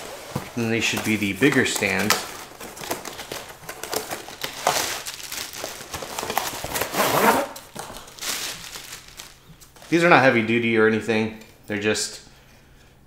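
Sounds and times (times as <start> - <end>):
bag rustling: 0.0 - 10.2.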